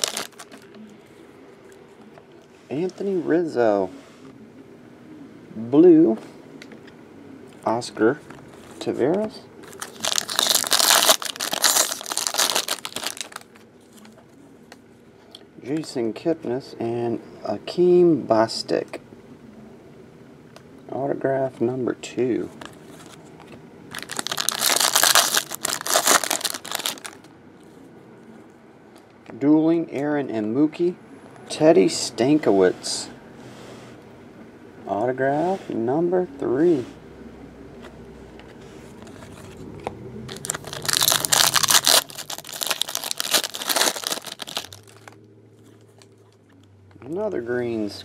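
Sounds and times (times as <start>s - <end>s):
foil wrapper tearing and crackling: 0.0s - 0.6s, 9.7s - 13.6s, 23.9s - 27.2s, 40.3s - 45.2s
loud crackling: 40.3s - 45.2s.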